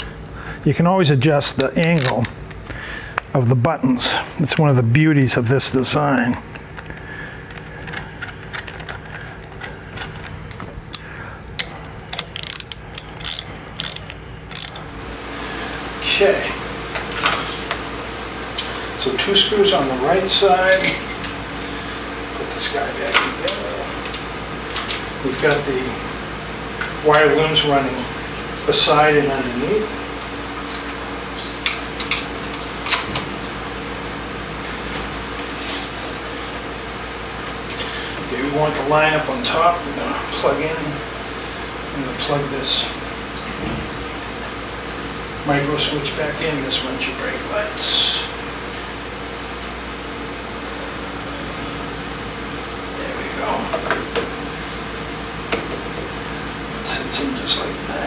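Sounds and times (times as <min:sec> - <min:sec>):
steady background hum: 0:00.0 - 0:58.0
hand ratchet clicking: 0:11.6 - 0:14.8.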